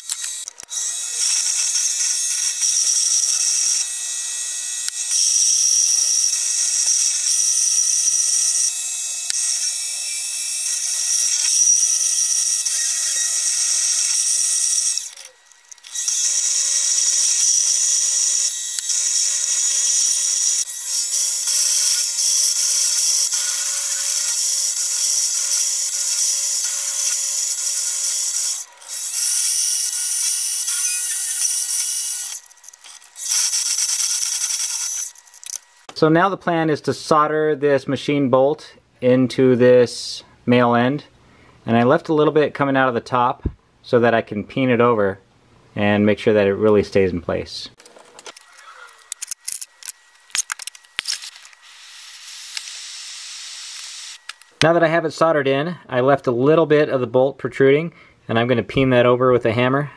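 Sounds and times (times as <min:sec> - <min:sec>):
lathe whining: 0:00.0 - 0:35.9.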